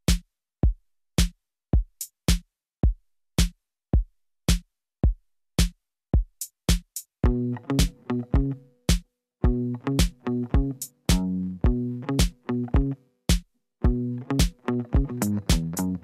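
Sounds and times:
drum-machine beat: 0:00.0 - 0:16.0
bass and plucked notes: 0:07.2 - 0:08.7, 0:09.4 - 0:13.0, 0:13.8 - 0:16.0.

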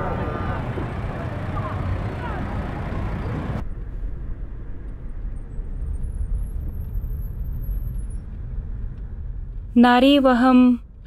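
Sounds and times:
low rumble: 0:00.0 - 0:09.8.

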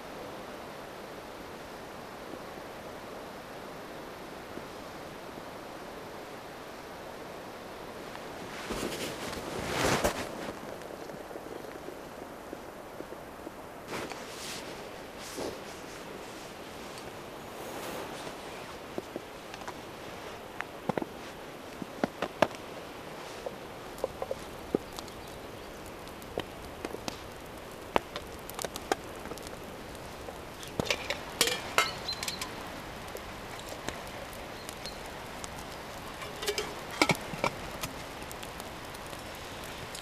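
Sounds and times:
steady background hiss: 0:00.0 - 0:40.0
small objects clicking and tapping: 0:30.2 - 0:32.6, 0:34.6 - 0:38.6.

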